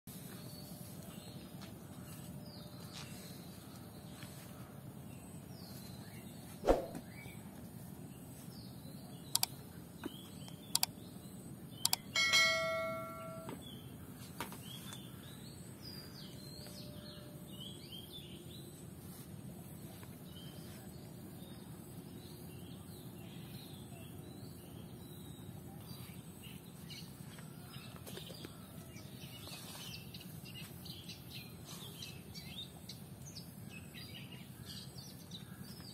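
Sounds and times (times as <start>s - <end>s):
small birds chirping: 0.1s - 35.9s
steady outdoor hiss: 0.1s - 35.9s
metallic bell-like ring: 12.1s - 13.6s.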